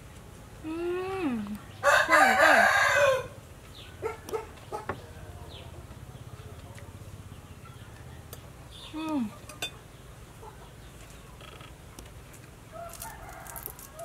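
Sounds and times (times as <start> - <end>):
rooster crowing: 1.8 - 3.4, 12.7 - 14.0.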